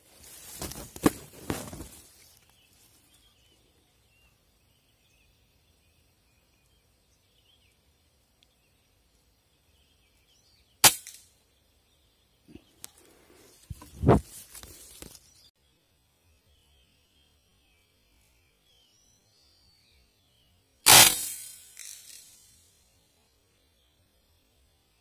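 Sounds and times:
rustling and knocks: 0.2s - 2.4s
faint bird chirps: 1.6s - 20.8s
air rifle shot: 10.8s - 11.2s, 20.9s - 22.0s.

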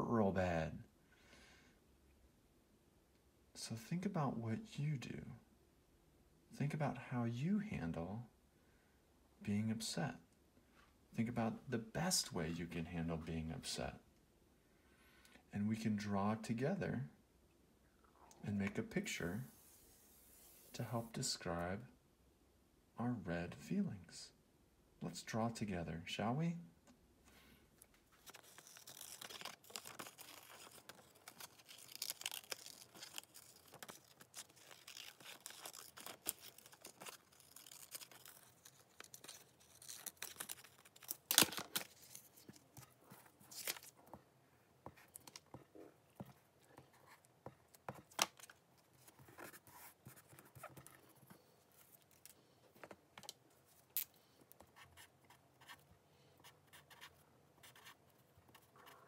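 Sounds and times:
paper rustling: 27.9s - 55.8s
paper tearing: 28.2s - 44.0s
scissors cutting paper: 28.3s - 42.8s
marker scratching on paper: 56.4s - 59.0s.

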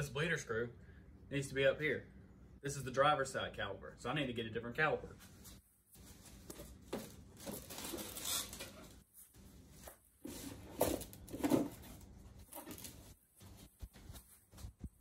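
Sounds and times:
cardboard packaging rustling: 6.0s - 14.8s.

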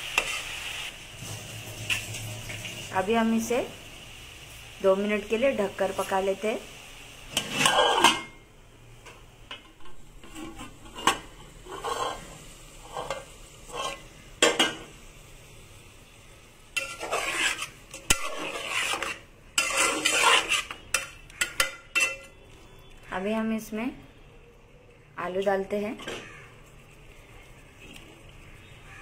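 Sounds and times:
spatula scraping metal pot: 7.4s - 8.3s, 10.2s - 14.1s, 16.8s - 22.4s.

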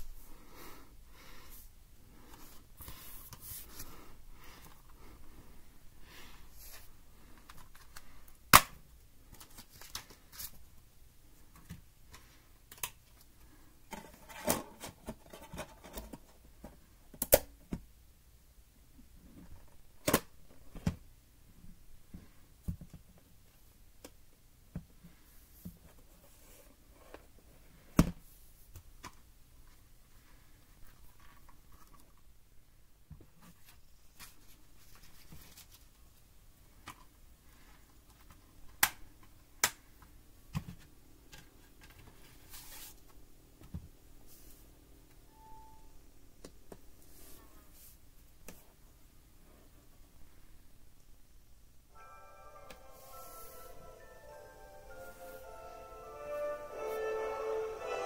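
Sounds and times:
hands rustling cables: 2.2s - 10.8s, 28.7s - 32.3s.

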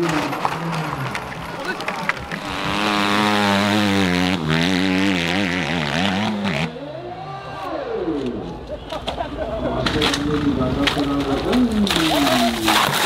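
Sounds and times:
dirt bike engine revving: 0.0s - 6.9s.

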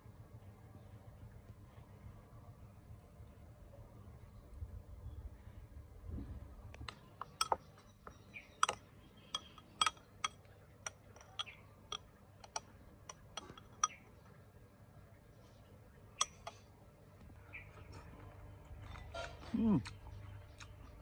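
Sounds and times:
metal spoon clinking on ceramic bowl: 8.6s - 14.0s.

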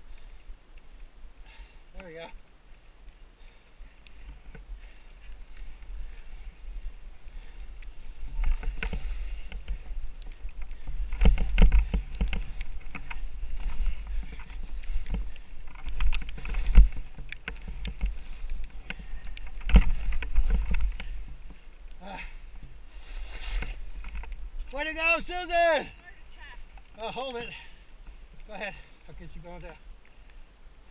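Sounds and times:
wind rumbling on microphone: 2.5s - 30.9s
skis swishing through snow: 22.8s - 24.0s.

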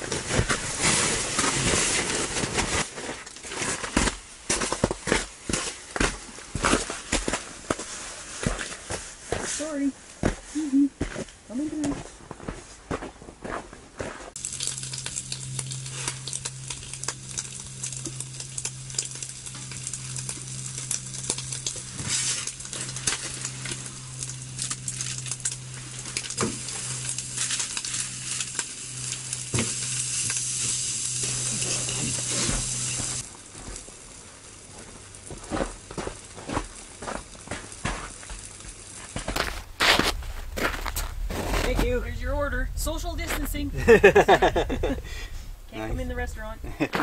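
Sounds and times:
steady low hum: 0.0s - 47.0s
food sizzling in a frying pan: 14.4s - 39.2s.

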